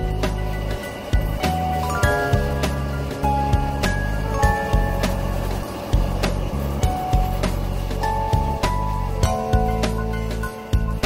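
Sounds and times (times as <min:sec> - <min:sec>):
gentle melody of ringing notes: 0:00.0 - 0:05.9.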